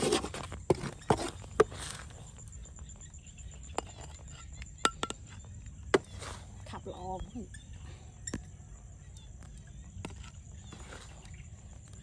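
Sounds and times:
spatula scraping a pan: 0.0 - 2.5, 6.0 - 6.7.

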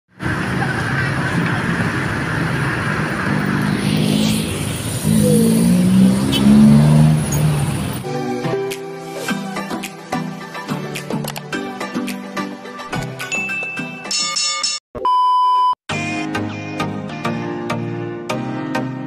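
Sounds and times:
road and wind noise: 0.1 - 8.1
motorbike engine revving: 0.2 - 8.1
music: 8.0 - 14.8, 15.9 - 19.0.

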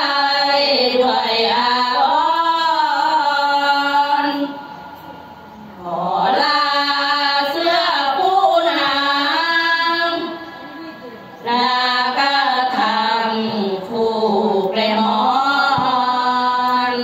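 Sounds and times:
women chanting: 5.8 - 10.8, 11.4 - 17.0.

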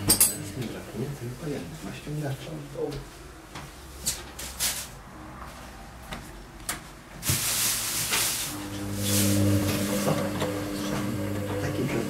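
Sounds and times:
washing machine motor hum: 0.0 - 1.2, 8.1 - 12.0
washing machine swishing hiss: 7.2 - 10.1.

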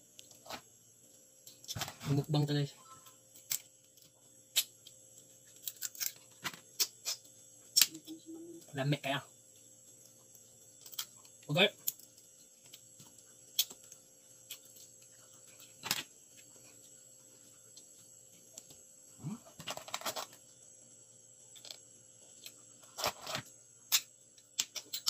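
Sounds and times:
crab shell cracking: 3.4 - 7.9, 13.5 - 14.8.

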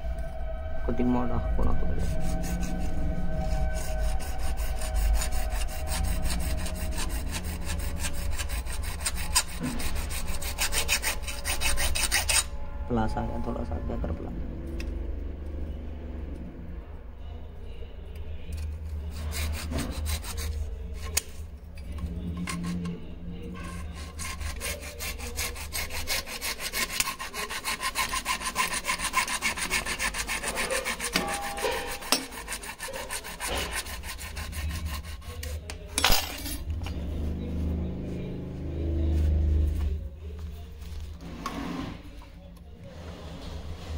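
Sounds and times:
hand tool sawing strokes: 1.7 - 12.5, 18.9 - 21.3, 23.5 - 35.7.

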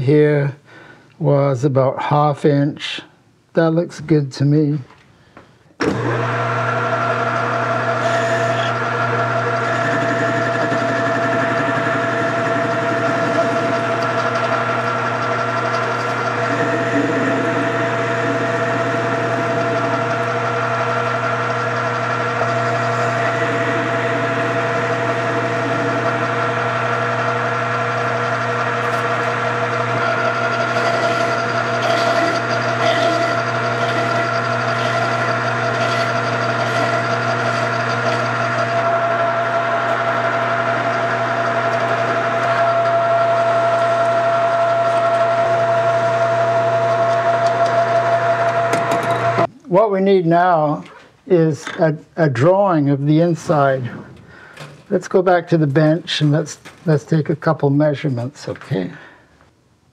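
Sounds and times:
metal lathe humming: 5.8 - 49.5.

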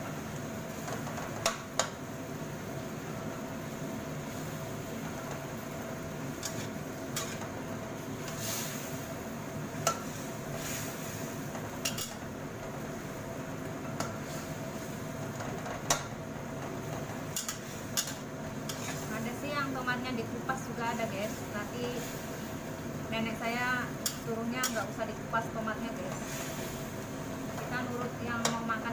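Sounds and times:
steady hiss: 0.0 - 28.9
metal spatula scraping wok: 6.4 - 7.5, 17.3 - 19.2.

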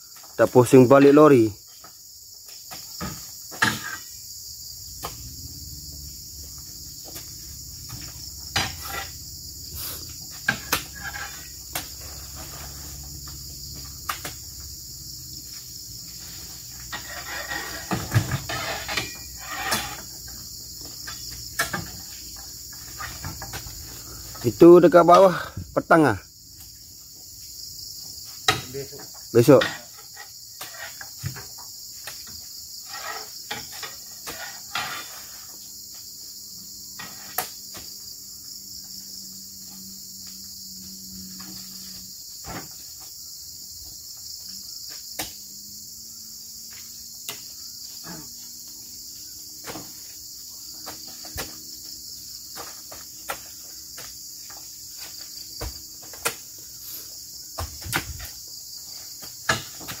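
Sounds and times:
high-pitched insect chorus: 0.0 - 60.0
fruit bunches knocking into lorry bed: 59.4 - 60.0.

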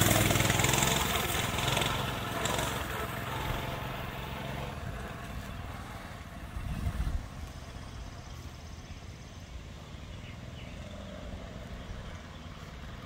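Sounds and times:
minibike engine riding away: 0.0 - 13.0.

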